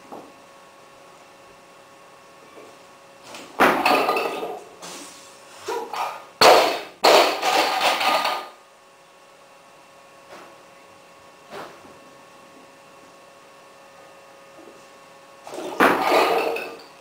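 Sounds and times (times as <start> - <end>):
barbell landing with loud bang: 3.6 - 4.4, 6.4 - 7.9, 15.6 - 16.6
plates rattling: 7.0 - 8.5, 15.6 - 16.9.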